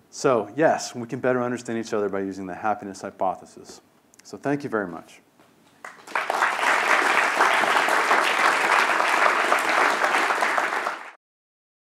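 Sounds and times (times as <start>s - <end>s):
audience applauding: 5.8s - 11.2s.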